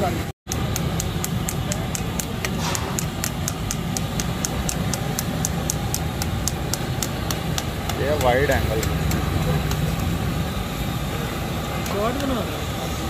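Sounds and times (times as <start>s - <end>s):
fast even ticking: 0.5s - 10.5s
chicken frying: 0.5s - 13.0s.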